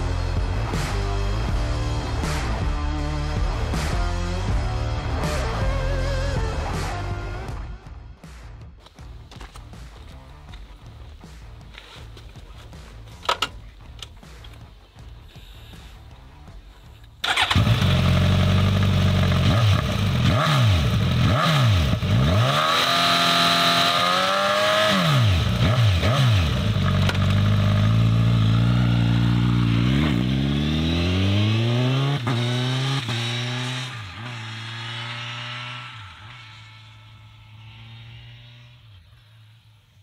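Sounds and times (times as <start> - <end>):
motorcycle engine revving: 17.2 - 40.0.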